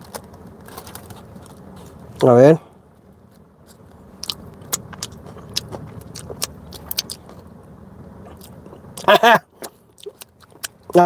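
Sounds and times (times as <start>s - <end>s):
crinkling of bread wrapping: 0.0s - 2.0s
low car cabin hum: 0.0s - 11.0s.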